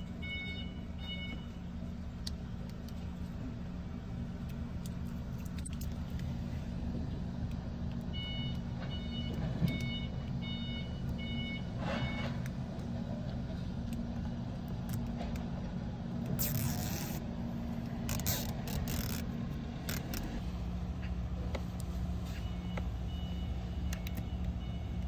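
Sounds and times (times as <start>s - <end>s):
electronic warning chime beeps: 0.2s - 1.6s, 8.2s - 12.3s, 22.3s - 25.0s
fingernail scratching film: 16.3s - 17.2s, 18.0s - 20.4s.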